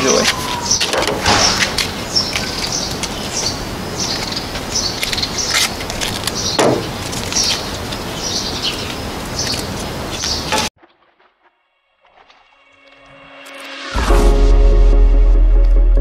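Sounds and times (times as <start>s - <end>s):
rustle: 0.0s - 10.7s
small birds chirping: 0.0s - 10.7s.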